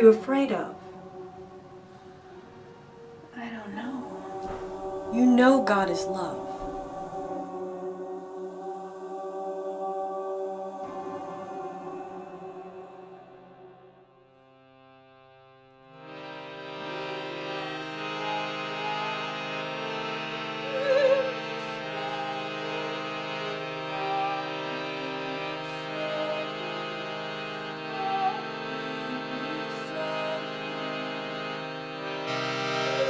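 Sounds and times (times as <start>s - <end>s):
slow harmonium music: 0.0s - 33.0s.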